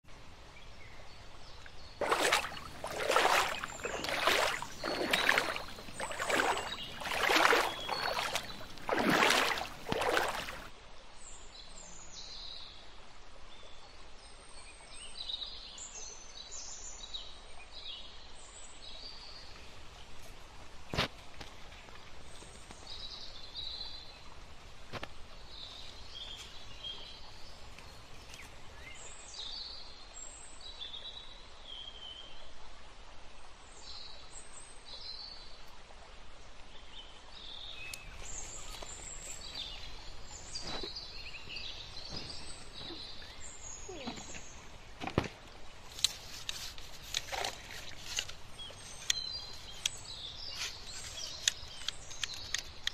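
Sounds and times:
small birds chirping: 0.8 - 10.7, 37.0 - 52.9.

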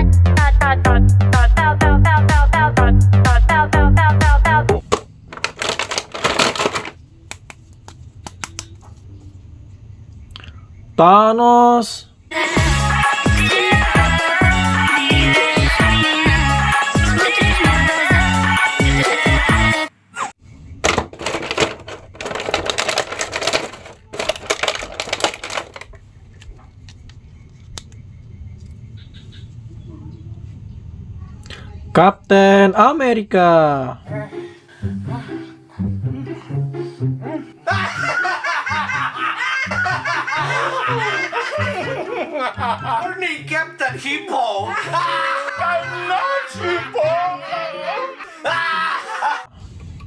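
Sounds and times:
plastic packaging crinkling: 5.3 - 7.6, 20.9 - 26.4.

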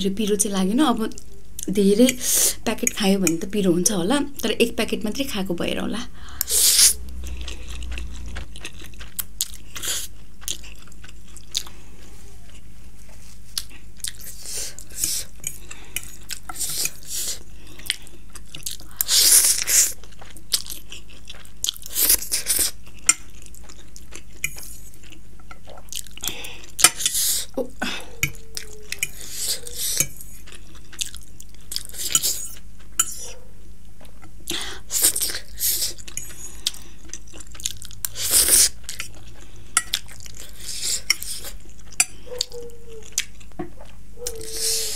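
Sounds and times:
steady low hum: 0.0 - 13.5
wet chewing and slurping noodles: 6.4 - 33.4, 34.9 - 44.9.

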